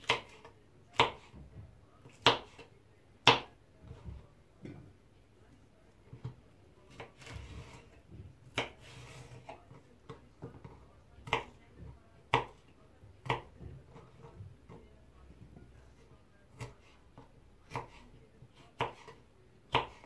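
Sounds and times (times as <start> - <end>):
knife rasping through pepper: 7.2 - 8.0, 8.6 - 9.5.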